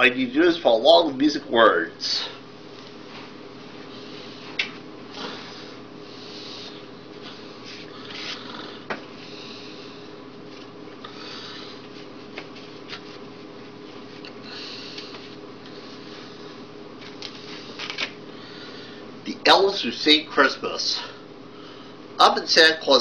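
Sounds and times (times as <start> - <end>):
steady low hum: 0.0 - 23.0
rustling handling noises: 11.8 - 14.4.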